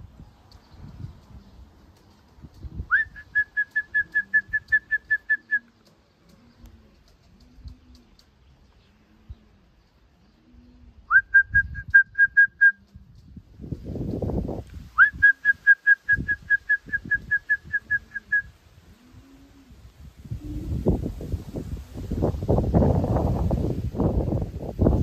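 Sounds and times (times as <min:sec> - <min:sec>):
pigeon cooing: 0:01.2 - 0:13.1, 0:15.0 - 0:21.1
quick whistled notes: 0:02.9 - 0:05.7, 0:15.0 - 0:18.5.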